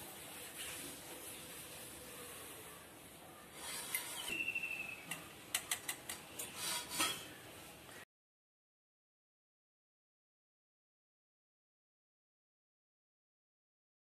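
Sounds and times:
thin high squeak: 3.5s - 4.6s, 6.5s - 7.4s.

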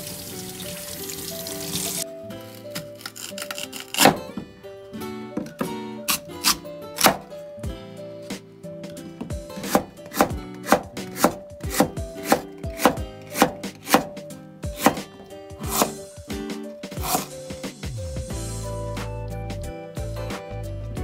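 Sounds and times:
knife slicing on cutting board: 2.8s - 4.3s, 9.6s - 14.1s, 14.8s - 16.0s, 17.0s - 17.4s.

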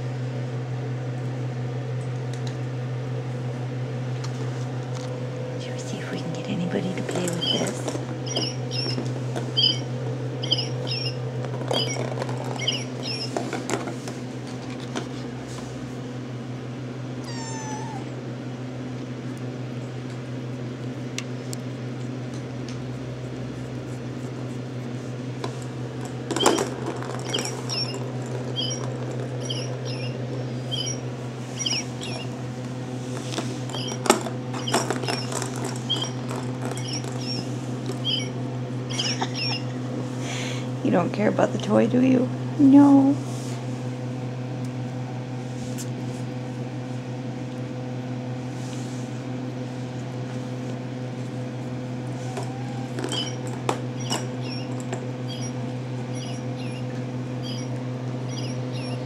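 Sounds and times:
steady low hum: 0.0s - 59.0s
kittens mewing: 7.2s - 12.0s, 17.2s - 18.3s, 27.2s - 32.5s, 33.7s - 39.8s, 51.9s - 59.0s.

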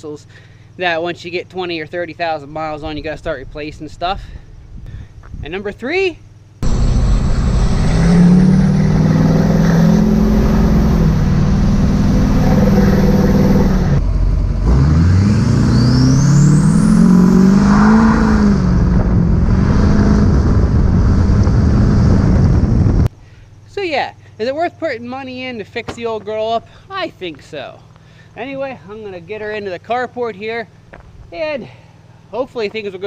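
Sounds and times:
diesel pickup engine accelerating: 6.6s - 23.1s.

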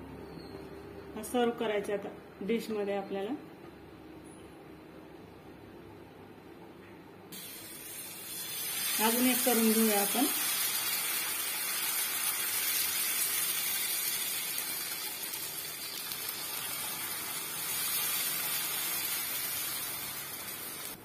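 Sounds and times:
batter sizzling on a hot pan: 7.4s - 21.0s.

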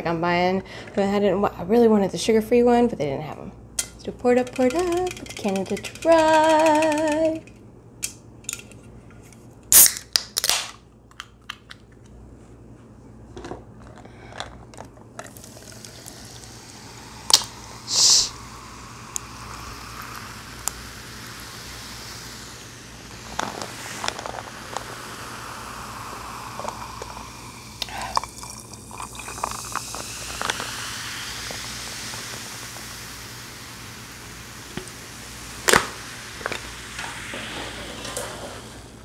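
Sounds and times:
can popping open: 9.6s - 11.8s, 35.6s - 36.7s
soda fizzing: 15.2s - 39.0s.

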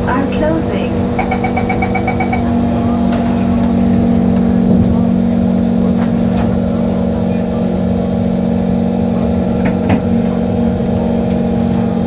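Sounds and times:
train carriage electric hum: 0.0s - 12.0s
short door warning beeps: 1.2s - 2.5s.

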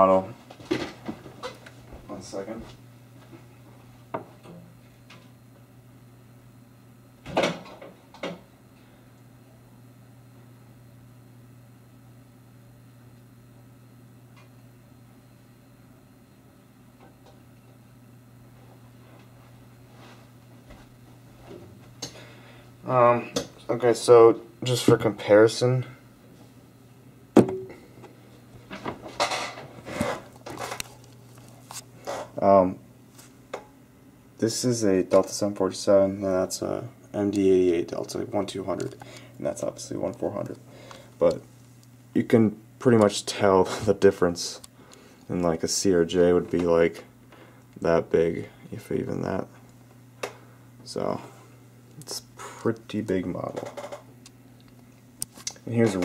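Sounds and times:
steady low hum: 0.0s - 56.0s
rustling scrapes: 29.7s - 32.3s.

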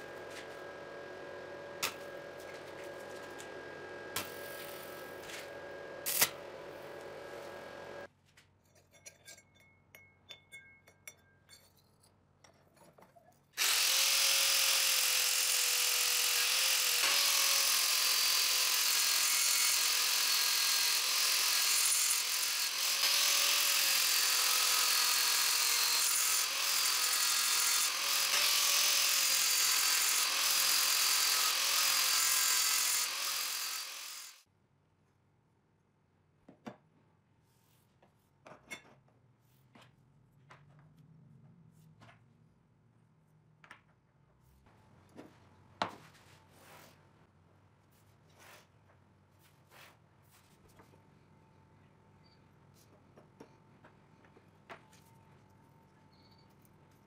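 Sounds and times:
angle grinder grinding steel: 0.0s - 8.1s, 13.6s - 34.4s.

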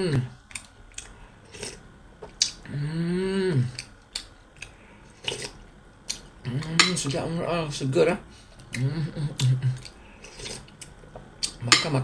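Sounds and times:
person chewing: 0.4s - 2.7s, 3.5s - 6.9s, 8.6s - 11.6s.

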